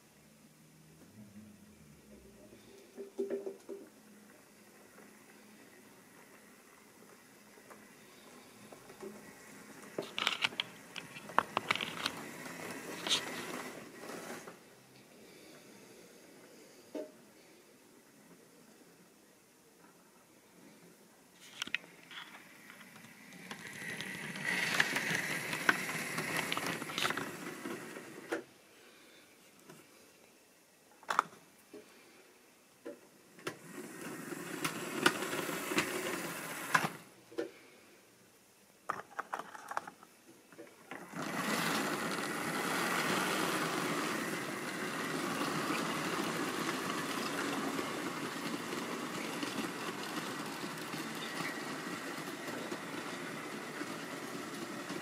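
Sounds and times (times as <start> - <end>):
model train motor whirring: 7.8 - 14.6, 22.1 - 28.4, 33.4 - 37.0, 40.9 - 55.0.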